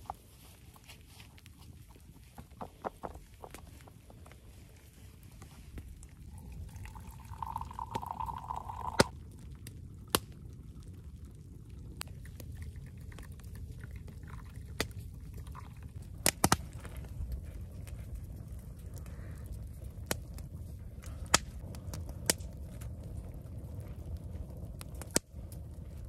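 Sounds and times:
campfire pops and snaps: 5.4 - 26.0
tea pouring into a glass: 6.3 - 9.1.

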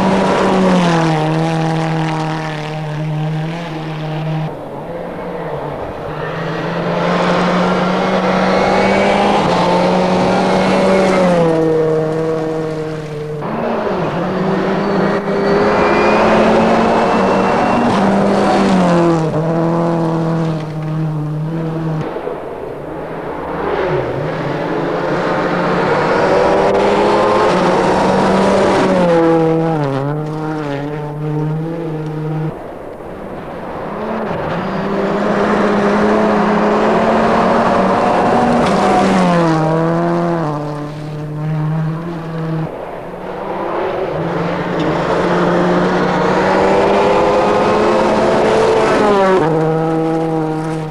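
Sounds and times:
rally cars passing with gear changes: 0.0 - 50.9.

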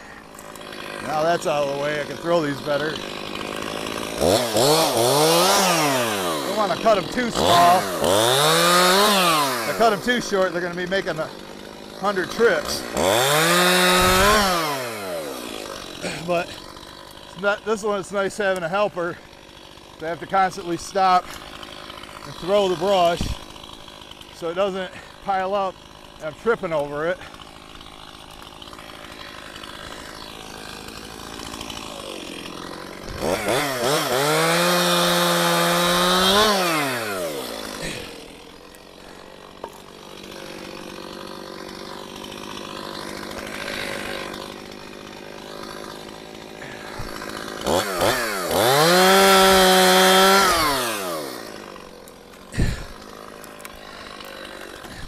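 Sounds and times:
chainsaw idling and revving: 0.0 - 55.0.

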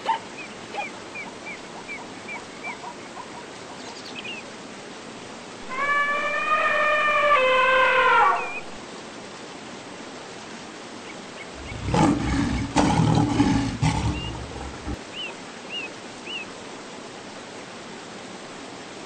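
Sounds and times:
drawn-out falling animal call: 0.0 - 4.5, 5.6 - 8.8, 11.5 - 16.5
flowing water rushing: 0.0 - 19.0
deep animal roar: 5.6 - 8.7, 11.6 - 15.0.

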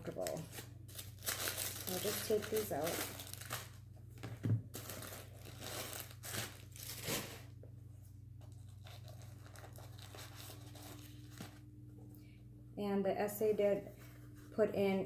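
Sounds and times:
paper crinkling and rustling: 0.0 - 7.5, 8.4 - 11.6
faint low hum: 0.0 - 15.0.

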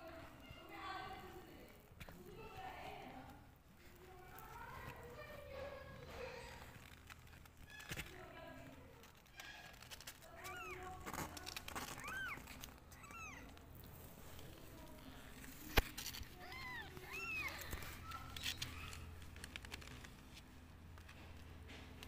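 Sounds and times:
kittens mewing: 10.1 - 13.8, 14.6 - 19.2.

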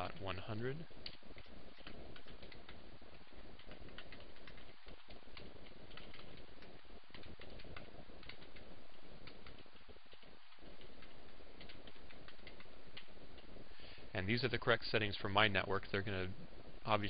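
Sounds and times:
background hiss: 0.0 - 17.0
keyboard keys clicking: 1.0 - 13.5.

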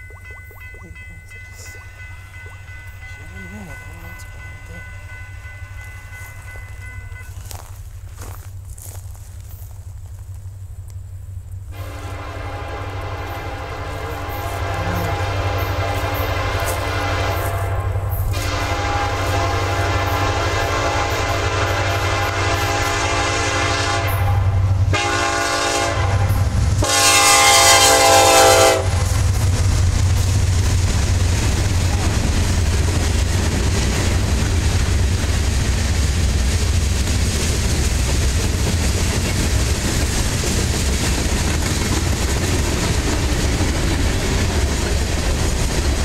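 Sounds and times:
low engine rumble: 0.0 - 20.5
locomotive horn blasts: 11.7 - 29.1
freight cars rolling by: 28.9 - 46.0.

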